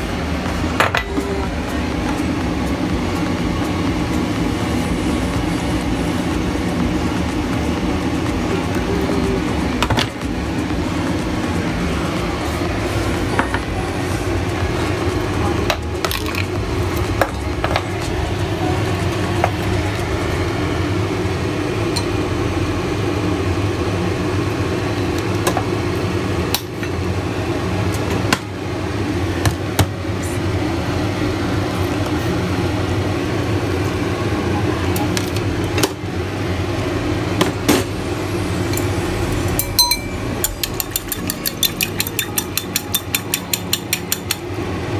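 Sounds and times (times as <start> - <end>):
low hum: 36.1 - 44.8
porcelain clinks and knocks: 39.6 - 44.4.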